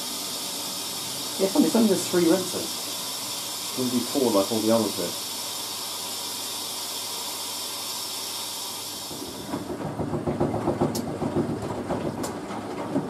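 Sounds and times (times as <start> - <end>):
water hissing into washing machine: 0.0 - 13.0
washing machine drum sloshing: 8.9 - 13.0.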